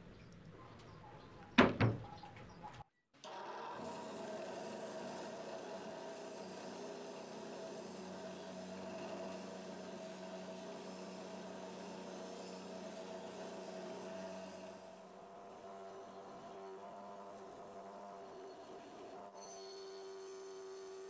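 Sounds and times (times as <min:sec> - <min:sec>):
wire brush grinder scrubbing metal: 0:03.8 - 0:19.4.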